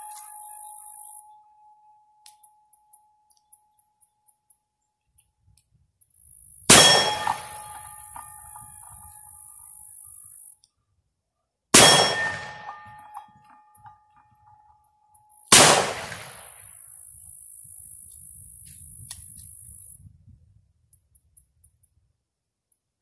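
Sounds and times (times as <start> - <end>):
metallic ring: 6.7 - 10.3, 11.8 - 15.5.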